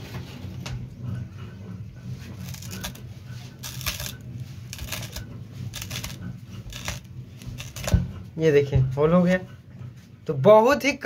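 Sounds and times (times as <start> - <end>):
coconut opener crunching husk: 2.2 - 8.3.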